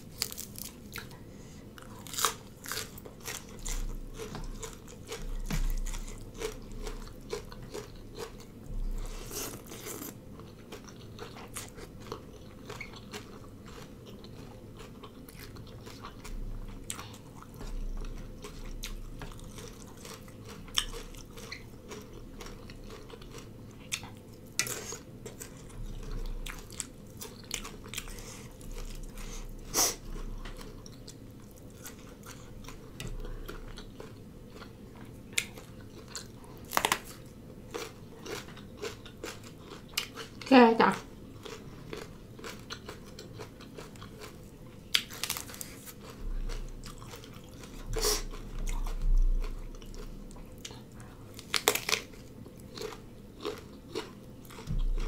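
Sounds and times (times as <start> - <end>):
person chewing: 0.1 - 40.5, 41.2 - 55.0
crunchy bites: 36.7 - 39.4, 51.4 - 54.8.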